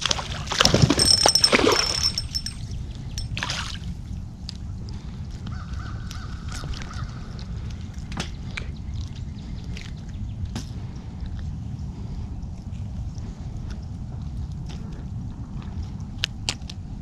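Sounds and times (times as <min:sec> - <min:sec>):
fish splashing in water: 0:00.0 - 0:02.2
soft water sounds: 0:00.0 - 0:14.4.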